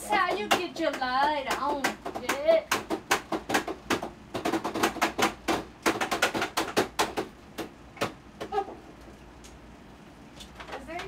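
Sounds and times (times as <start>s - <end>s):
fingers tapping plastic: 0.1s - 8.6s.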